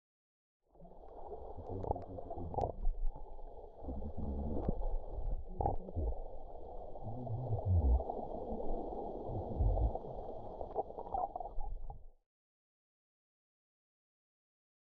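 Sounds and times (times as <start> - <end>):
muffled water gurgling underwater: 0.7 - 12.2.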